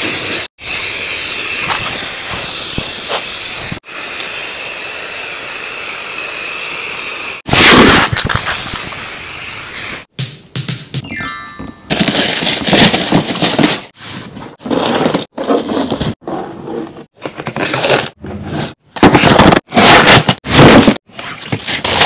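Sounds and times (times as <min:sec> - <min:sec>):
paper and tape ripping: 0:07.5 - 0:09.1, 0:11.9 - 0:13.9, 0:14.5 - 0:22.0.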